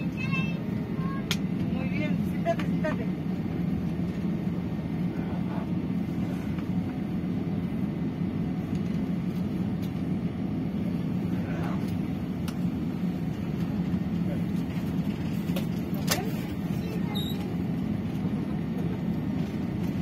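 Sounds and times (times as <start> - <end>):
aircraft cabin low rumble: 0.0 - 20.0.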